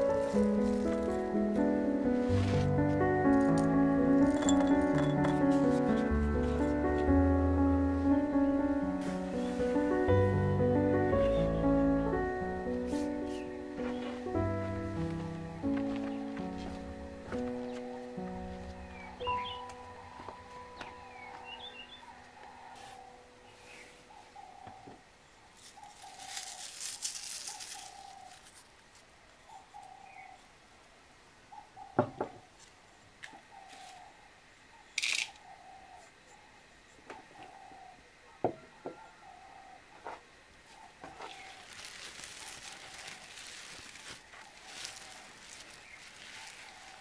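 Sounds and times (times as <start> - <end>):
sharp crackle: 0.0 - 6.8, 25.6 - 29.1, 41.2 - 47.0
cloth and dried herbs rustling: 0.0 - 7.2, 7.8 - 21.8, 22.6 - 24.0, 25.5 - 29.1, 40.7 - 47.0
bird calling a low note: 13.4 - 25.1
knocks on wooden tabletop: 32.0 - 32.4.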